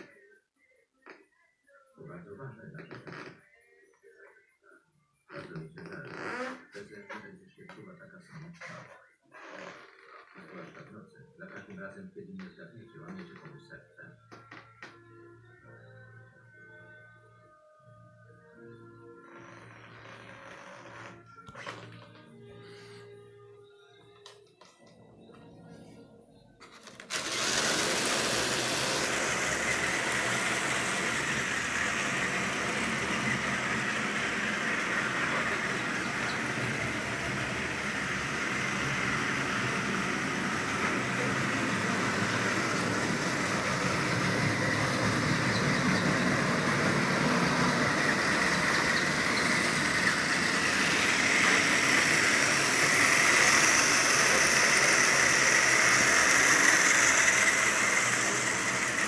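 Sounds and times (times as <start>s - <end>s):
model train motor whirring: 26.8s - 59.0s
wheels rattling on rails: 27.1s - 59.0s.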